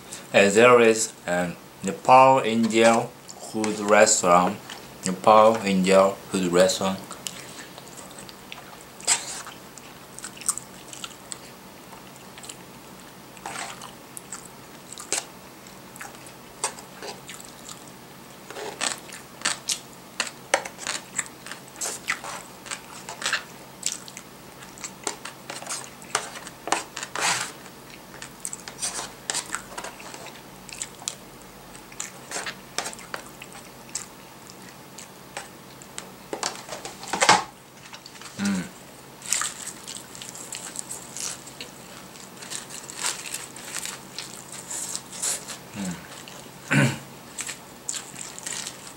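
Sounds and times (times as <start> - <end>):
person chewing food crunchily: 7.0 - 37.1, 37.7 - 48.9.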